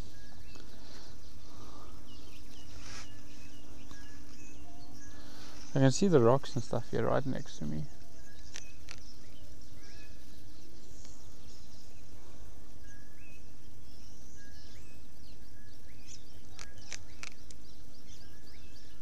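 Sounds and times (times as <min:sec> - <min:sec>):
birds chirping: 0:00.0 - 0:19.0
outdoor background hiss: 0:00.0 - 0:19.0
sharp clicks: 0:08.4 - 0:09.1, 0:16.4 - 0:17.6.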